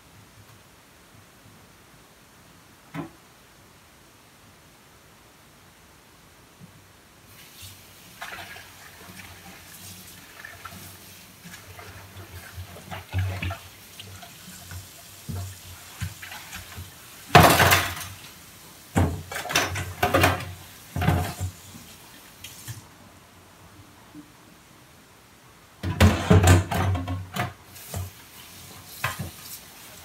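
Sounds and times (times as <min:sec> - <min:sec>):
tap water running and splashing: 0:07.3 - 0:22.9, 0:25.8 - 0:30.0
pot and dishes clattering: 0:17.3 - 0:18.2, 0:19.0 - 0:21.5, 0:25.8 - 0:27.6.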